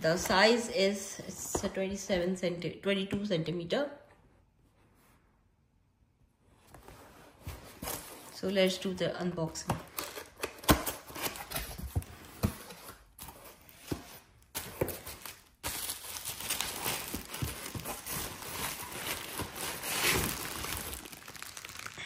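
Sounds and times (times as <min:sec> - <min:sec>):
bubble wrap crinkling: 0:13.0 - 0:22.0.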